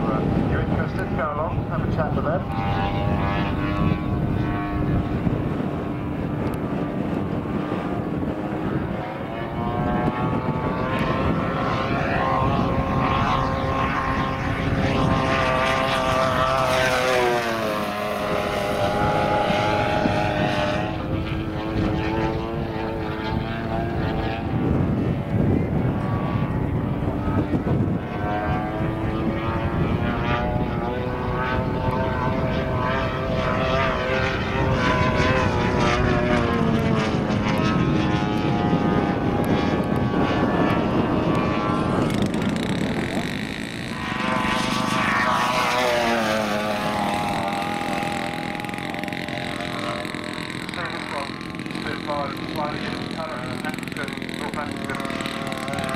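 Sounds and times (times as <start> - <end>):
model plane engine with propeller drone: 0.0 - 55.9.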